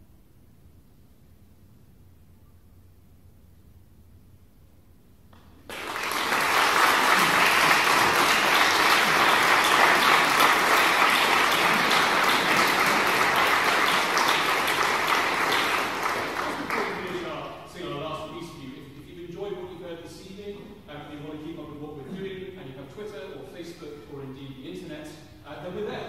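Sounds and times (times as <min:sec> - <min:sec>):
audience applauding: 0:05.7 - 0:17.6.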